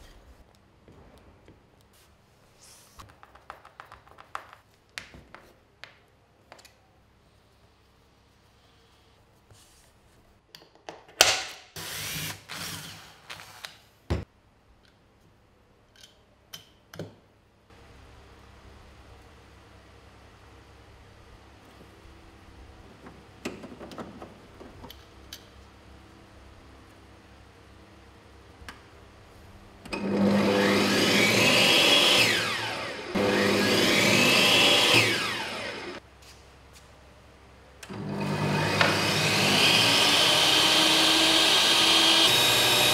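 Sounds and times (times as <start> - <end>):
table saw motor whining: 30.0 - 36.0, 37.9 - 42.9.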